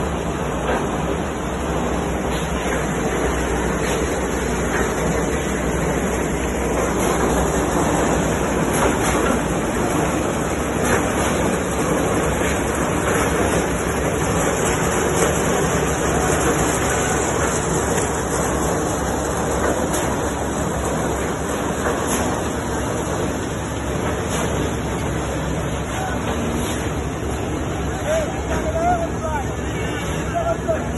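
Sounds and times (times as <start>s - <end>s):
construction machinery rumbling: 0.0s - 30.9s.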